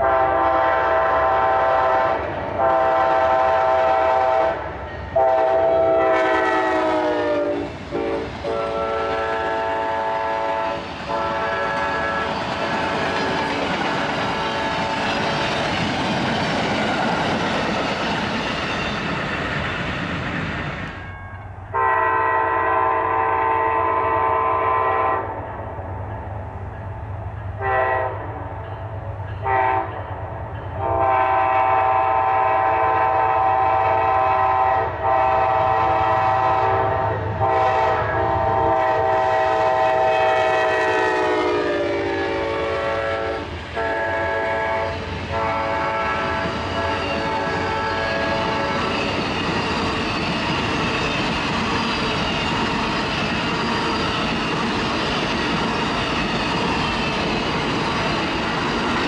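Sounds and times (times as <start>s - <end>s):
locomotive chime horn: 0.0s - 13.5s, 21.0s - 25.5s, 27.5s - 48.9s
train cars rushing past: 0.0s - 59.0s.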